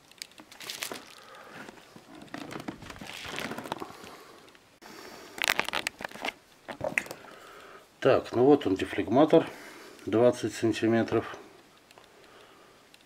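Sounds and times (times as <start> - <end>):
bubble wrap rustling and crackling: 0.0 - 4.2, 5.2 - 7.3.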